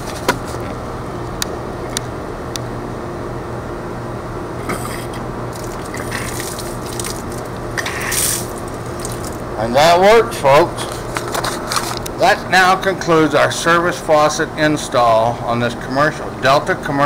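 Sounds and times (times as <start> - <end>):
short hissing spurts: 4.7 - 9.4
water rushing from faucet: 5.5 - 9.5.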